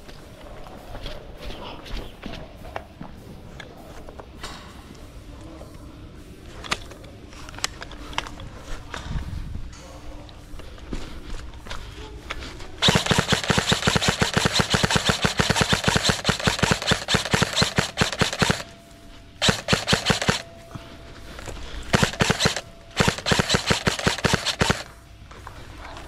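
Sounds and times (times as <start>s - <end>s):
airsoft rifle firing bursts: 12.8s - 18.7s, 19.4s - 20.5s, 21.9s - 24.9s.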